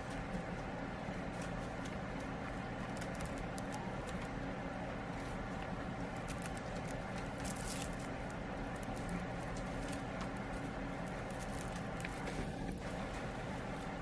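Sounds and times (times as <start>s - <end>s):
guinea pig gnawing hay: 0.0s - 14.0s
steady low hum: 0.0s - 14.0s
scratchy rustle: 6.2s - 14.0s.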